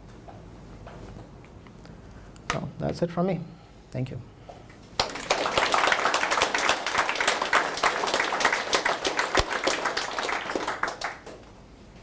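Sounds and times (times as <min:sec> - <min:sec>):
audience applauding: 0:05.0 - 0:11.5.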